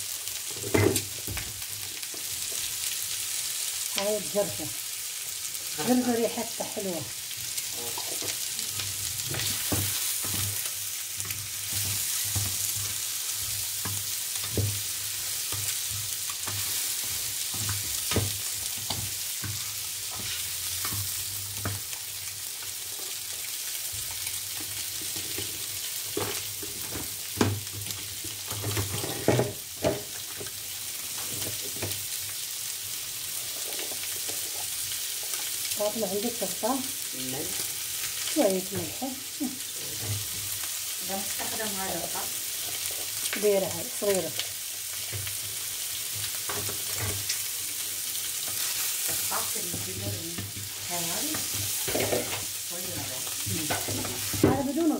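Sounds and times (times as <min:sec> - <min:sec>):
food sizzling in a frying pan: 0:00.0 - 0:54.9.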